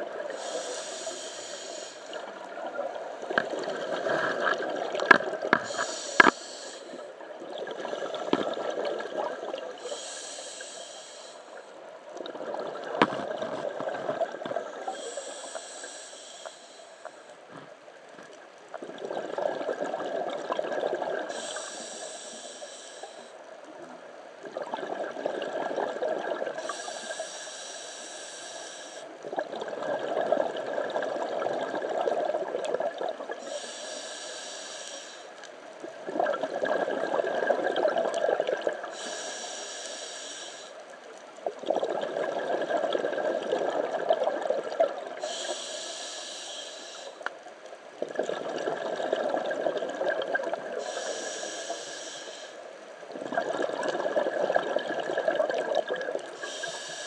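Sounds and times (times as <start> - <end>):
regulator inhale hiss: 0.3 - 2.3, 5.5 - 7.2, 9.8 - 11.8, 14.7 - 17.5, 21.3 - 23.5, 26.6 - 29.2, 33.4 - 35.5, 38.8 - 40.9, 45.2 - 47.5, 50.7 - 52.8, 56.2 - 57.0
exhaled bubbles rushing: 7.4 - 9.8, 18.8 - 21.3, 24.5 - 26.6, 29.3 - 33.4, 36.0 - 38.9, 41.6 - 45.2, 48.0 - 50.8, 53.1 - 56.4.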